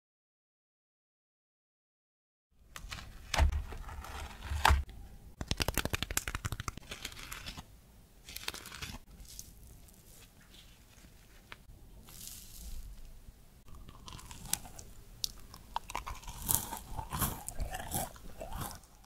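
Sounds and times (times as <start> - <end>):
cookie crust crackling: 5.4 - 19.0.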